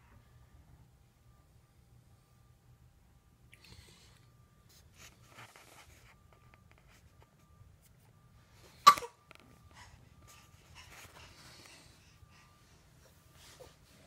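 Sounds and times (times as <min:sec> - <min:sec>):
faint soft rustling: 0:09.4 - 0:14.0.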